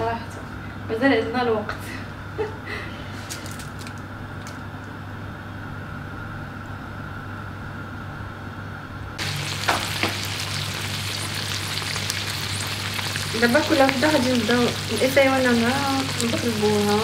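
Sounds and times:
low steady hum: 0.0s - 17.0s
prawns sizzling in frying pan: 9.2s - 17.0s.

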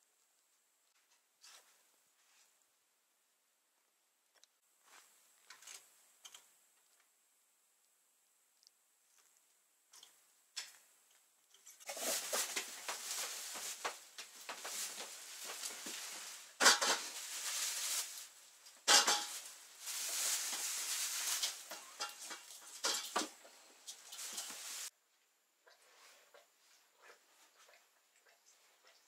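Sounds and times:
rustling and scuffing: 1.0s - 2.6s, 11.8s - 24.9s.

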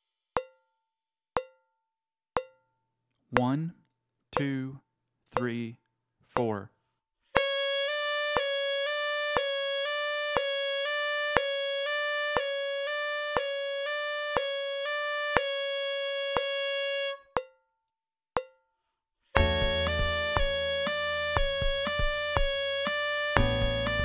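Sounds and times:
metronome clicking: 3.4s - 3.7s, 4.4s - 5.8s, 8.3s - 9.6s, 10.3s - 10.6s, 11.3s - 11.6s, 12.3s - 12.6s, 13.3s - 13.6s, 14.3s - 14.5s
tenor saxophone playing: 7.4s - 17.4s, 19.4s - 24.0s.

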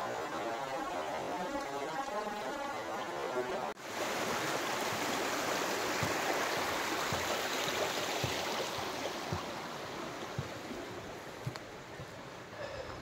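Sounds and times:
stream rushing over stones: 0.0s - 12.6s
dull footsteps: 4.3s - 13.0s.

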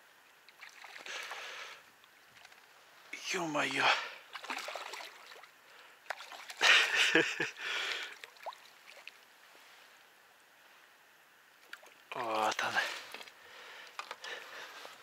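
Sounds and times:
water splashing: 0.4s - 2.7s, 4.3s - 7.2s, 7.8s - 9.3s, 11.6s - 15.0s.

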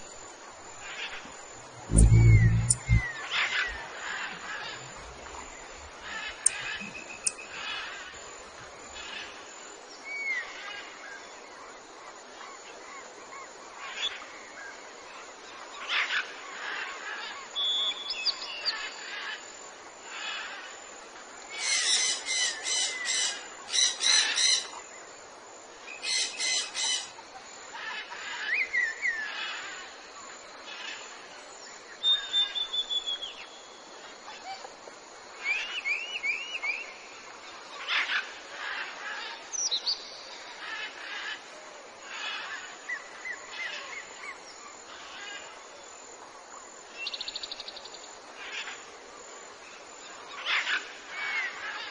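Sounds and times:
birds harsh rapid chatter: 1.9s - 3.1s
bird whistles chirps and trills: 1.9s - 3.2s, 32.0s - 33.7s.

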